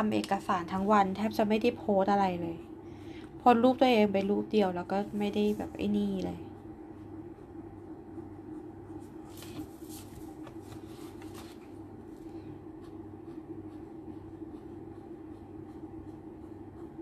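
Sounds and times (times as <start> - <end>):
steady low hum: 0.0 - 17.0
paper rustling on table: 9.0 - 11.8
marker strokes on paper: 12.7 - 17.0.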